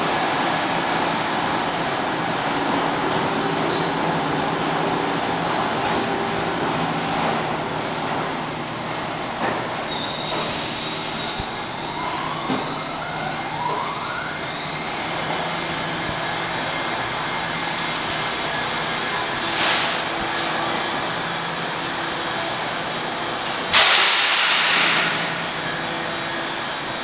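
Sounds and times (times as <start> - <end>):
subway train rumbling to a stop: 0.0 - 27.0.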